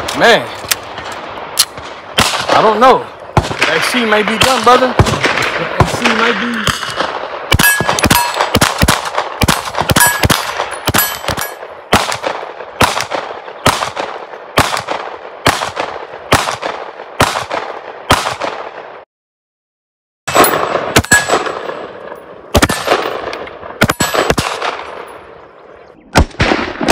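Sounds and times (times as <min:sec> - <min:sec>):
rifle single shots: 0:00.0 - 0:19.0, 0:20.3 - 0:25.4, 0:26.1 - 0:26.9
rapid pistol shots: 0:01.6 - 0:18.9, 0:20.3 - 0:25.0, 0:26.2 - 0:26.9
steel targets ringing: 0:07.6 - 0:08.4, 0:10.0 - 0:11.6.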